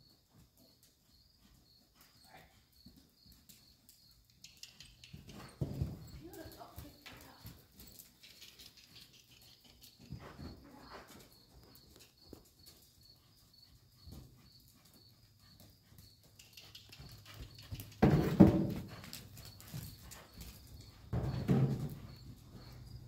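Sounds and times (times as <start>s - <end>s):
faint high chirping: 0.6s - 18.0s
hooves thudding on sand: 4.9s - 23.0s.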